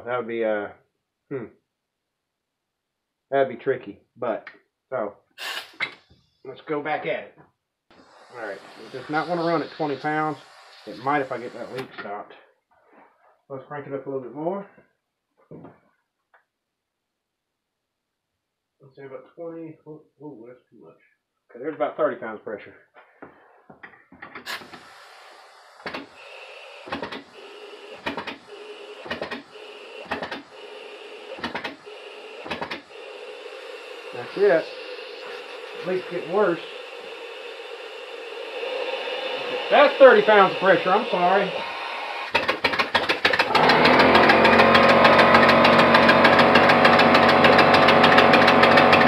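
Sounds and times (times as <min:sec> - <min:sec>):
air leak whistling: 0:05.4 - 0:06.1, 0:07.9 - 0:12.1, 0:24.3 - 0:49.0
exhaust puff: 0:07.9 - 0:12.0, 0:24.4 - 0:49.0
air engine knocking: 0:08.0 - 0:11.9, 0:24.5 - 0:49.0.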